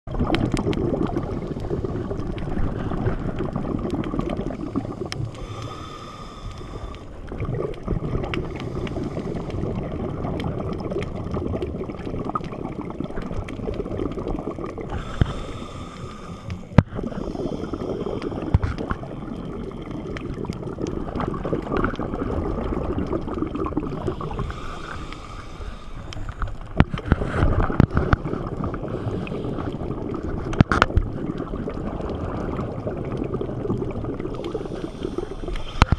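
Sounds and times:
exhaled bubbles gurgling underwater: 0:00.1 - 0:35.9
regulator inhalation hiss: 0:04.9 - 0:07.1, 0:14.9 - 0:18.5, 0:24.2 - 0:26.4, 0:34.4 - 0:35.9.

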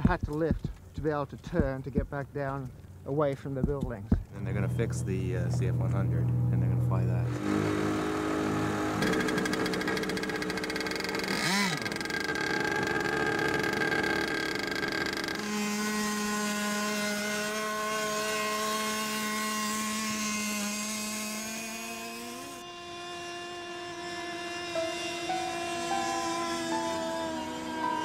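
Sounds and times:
model plane piston engine running: 0:06.3 - 0:28.0.

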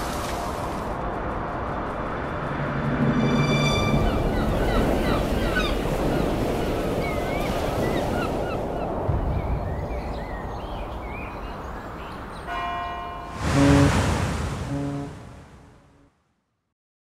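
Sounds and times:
surf washing over rocks: 0:00.0 - 0:00.9, 0:13.3 - 0:15.8
birds calling: 0:04.0 - 0:12.6.

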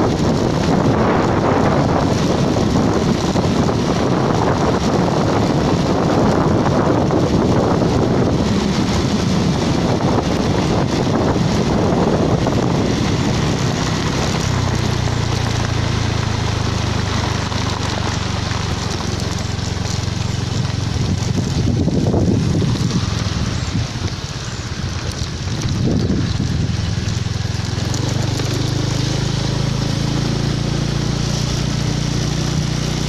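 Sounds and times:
vehicle engine hum: 0:00.0 - 0:33.0
wind buffeting microphone: 0:00.0 - 0:33.0.

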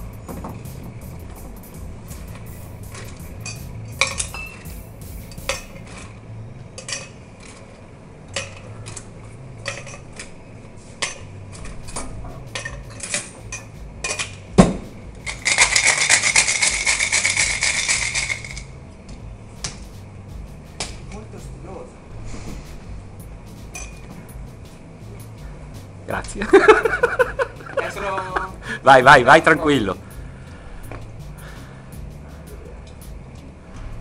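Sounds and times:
sharp knock: 0:14.5 - 0:15.0
shaker rattling with ice: 0:15.2 - 0:18.7
ice cubes clinking into metal tin: 0:15.3 - 0:18.6.

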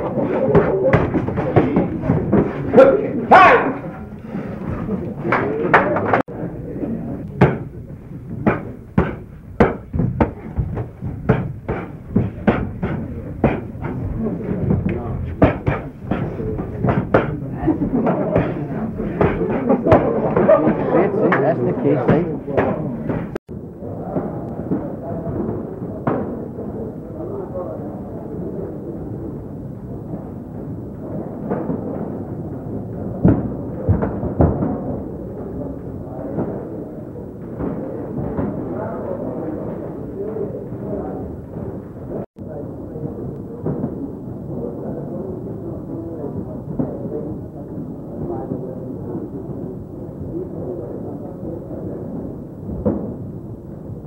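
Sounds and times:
muffled boxing gym noise: 0:00.0 - 0:54.0
boxing gloves punches smacking: 0:08.4 - 0:14.0.

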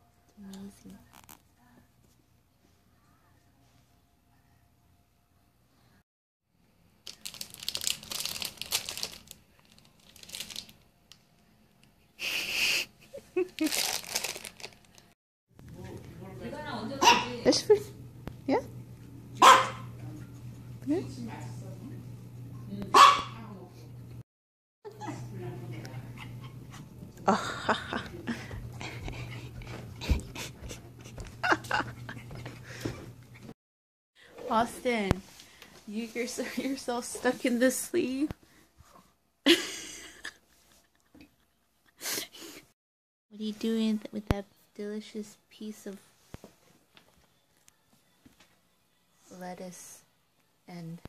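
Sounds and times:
plastic bag crinkling: 0:07.0 - 0:10.9, 0:13.4 - 0:15.2
small dog panting: 0:25.8 - 0:27.0, 0:28.3 - 0:31.2.

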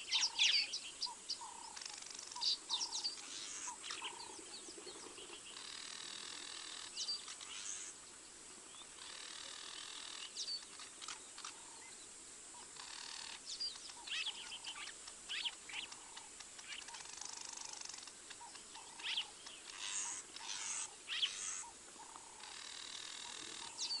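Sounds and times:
birds chirping and calling: 0:00.0 - 0:24.0
buzzing bird trill: 0:05.5 - 0:08.0, 0:09.0 - 0:11.2, 0:12.8 - 0:24.0.

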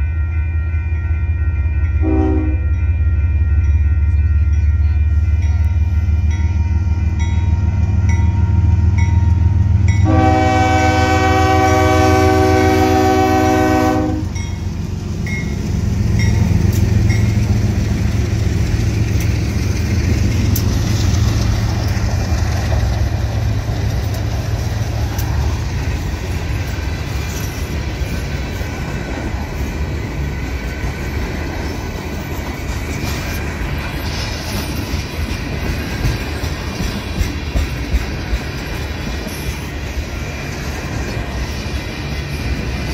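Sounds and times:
crossing bell dinging: 0:00.0 - 0:20.7
locomotive engines rumbling: 0:00.0 - 0:42.9
train horn blast: 0:02.0 - 0:03.0, 0:06.8 - 0:14.4
train wheels clattering on rails: 0:14.2 - 0:42.9.

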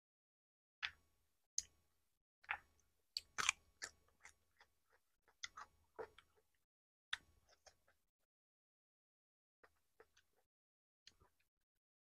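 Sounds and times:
person chewing with open mouth: 0:02.5 - 0:06.5.

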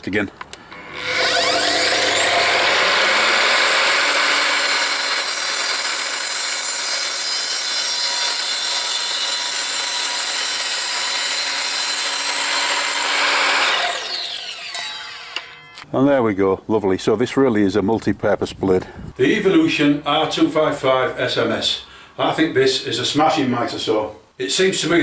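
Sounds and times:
mitre saw cutting timber: 0:00.8 - 0:15.8.

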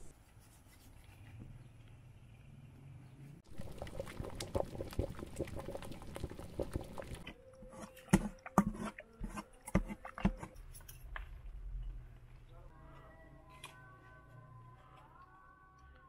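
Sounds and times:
stew bubbling and popping: 0:03.4 - 0:10.6.

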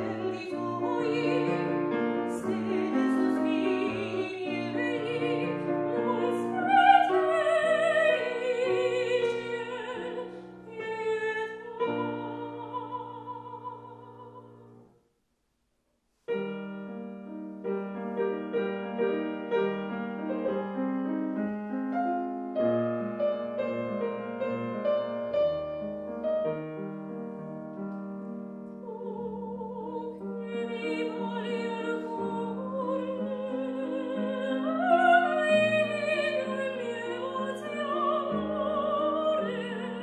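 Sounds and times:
soprano singing with vibrato: 0:00.0 - 0:14.8, 0:28.8 - 0:40.0
grand piano: 0:00.0 - 0:14.9, 0:16.3 - 0:40.0.

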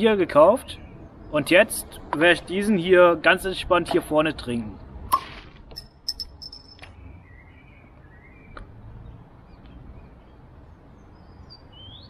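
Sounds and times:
birds chirping: 0:00.0 - 0:02.8, 0:05.7 - 0:12.0.

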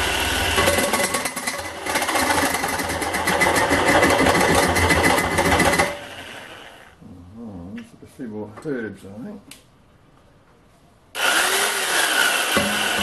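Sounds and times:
reciprocating saw cutting metal: 0:11.2 - 0:13.0.

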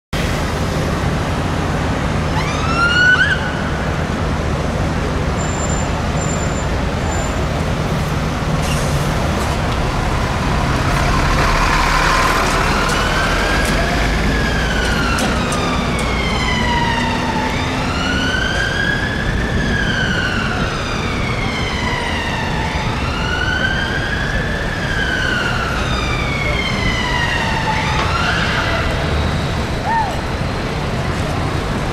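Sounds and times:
city traffic noise: 0:00.1 - 0:31.9
fire truck siren wailing: 0:01.7 - 0:04.5, 0:09.6 - 0:31.2
siren whoop: 0:02.3 - 0:03.7.

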